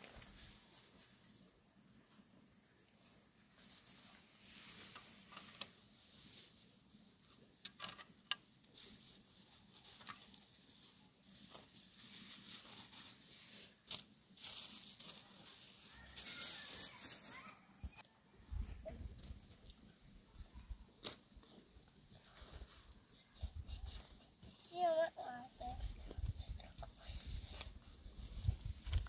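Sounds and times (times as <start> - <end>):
dry grain pouring and hissing: 0.0 - 1.4, 2.8 - 6.7, 8.7 - 18.0
plastic bag crinkling: 13.9 - 18.0.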